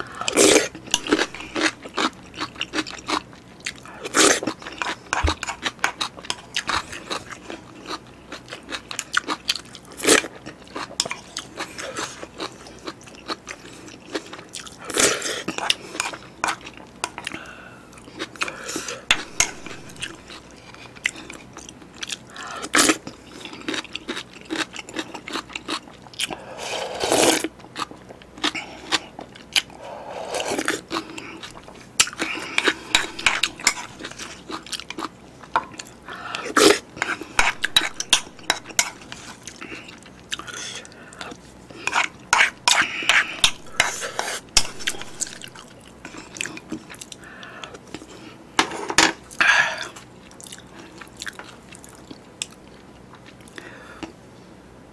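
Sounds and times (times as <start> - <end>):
chewing and swallowing: 0.3 - 26.5, 27.3 - 48.3, 49.2 - 54.1
wooden spoon scraping a bowl: 41.8 - 45.5.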